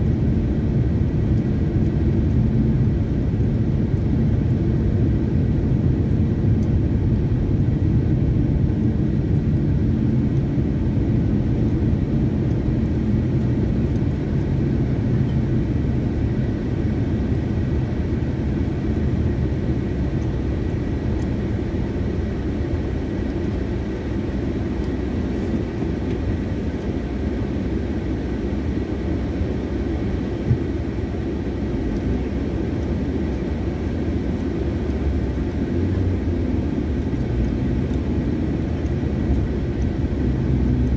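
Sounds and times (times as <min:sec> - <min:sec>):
car cabin rumble: 0:30.0 - 0:31.1.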